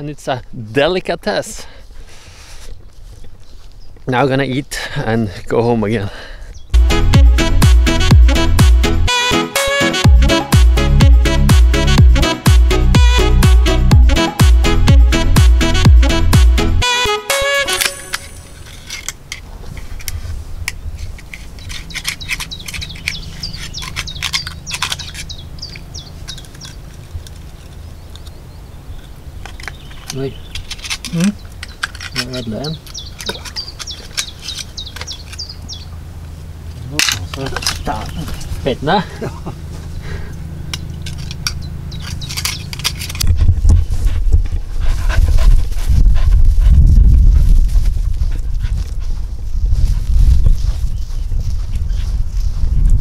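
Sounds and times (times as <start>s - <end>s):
small birds chirping: 1.2s - 6.8s, 21.3s - 44.2s, 48.4s - 52.8s
knife prising open shells: 21.0s - 26.8s, 29.5s - 35.5s
low rumble: 37.6s - 53.0s.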